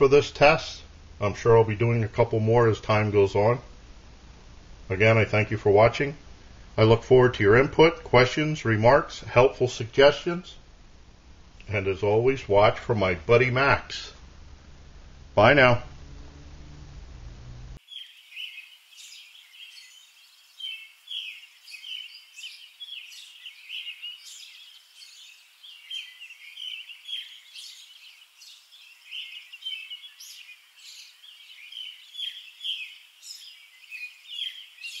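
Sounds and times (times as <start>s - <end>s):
birds chirping: 0.0s - 3.6s, 11.6s - 14.3s, 17.7s - 35.0s.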